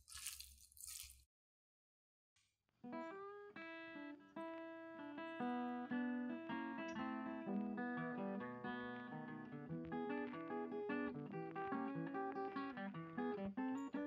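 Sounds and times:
tongs tossing noodles in glass bowl: 0.0s - 1.2s
plucked guitar music: 2.9s - 14.0s.

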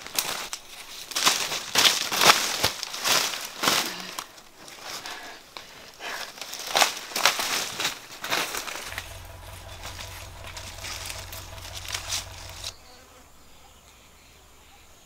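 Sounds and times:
dry leaves rustling and crackling: 0.0s - 5.0s.

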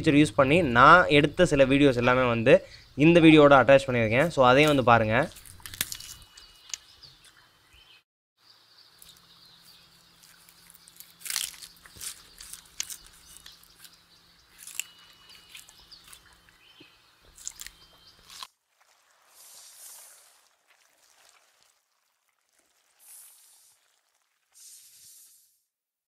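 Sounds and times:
crunching and chewing bamboo: 4.6s - 7.4s, 9.0s - 19.3s.

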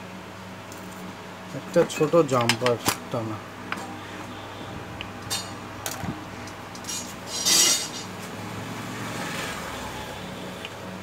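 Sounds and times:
small tools clicking and clinking: 6.7s - 8.1s.

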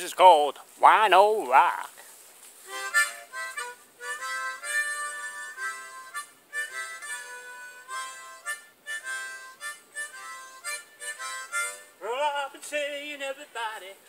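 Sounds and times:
blues harmonica playing: 2.6s - 12.3s.

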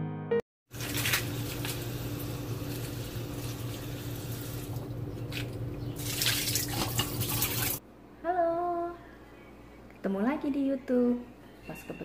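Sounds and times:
faucet water running into bowl: 0.7s - 7.8s
water splashing: 6.0s - 7.8s.

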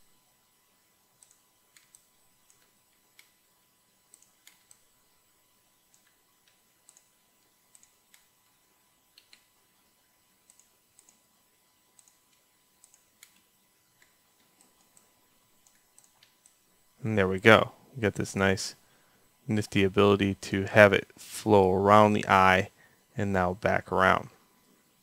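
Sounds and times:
mouse and keyboard clicks: 1.2s - 3.4s, 4.1s - 4.9s, 5.9s - 7.1s, 9.1s - 9.5s, 12.0s - 16.6s.

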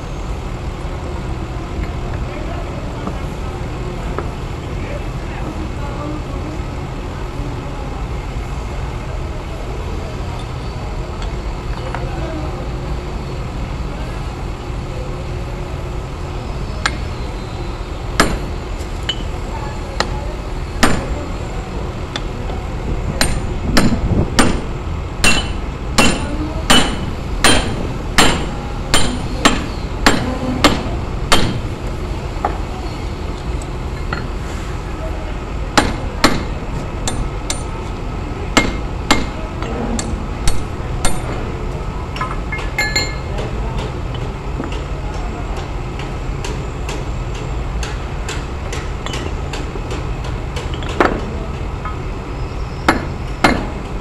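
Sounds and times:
hammer striking steel punch: 18.2s - 18.5s, 20.8s - 21.1s, 23.2s - 31.6s, 35.8s - 36.5s, 38.6s - 41.4s, 52.9s - 53.8s.

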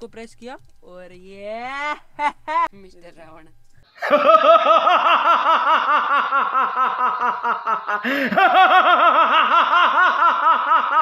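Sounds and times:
recorded villain laugh: 4.0s - 11.0s.

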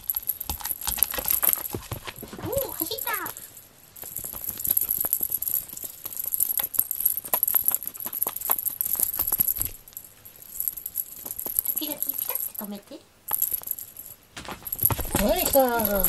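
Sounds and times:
cat toy tapping and rattling: 14.4s - 16.0s.

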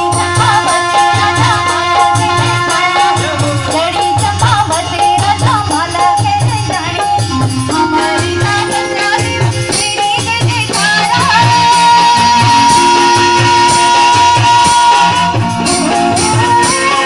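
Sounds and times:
jingling rattle percussion: 0.0s - 11.0s
steady drum beat: 0.0s - 17.0s
folk dance music: 7.3s - 17.0s.

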